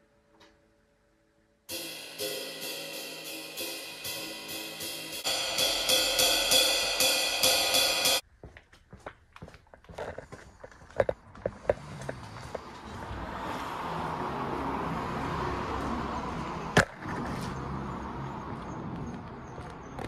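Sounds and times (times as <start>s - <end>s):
band playing: 1.7s - 8.2s
cymbals and hi-hat: 1.7s - 8.2s.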